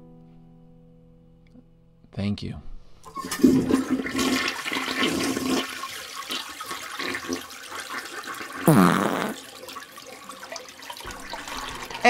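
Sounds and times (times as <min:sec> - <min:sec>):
toilet flushing: 0:03.1 - 0:12.0
loud gurgle falling in pitch: 0:08.6 - 0:09.5.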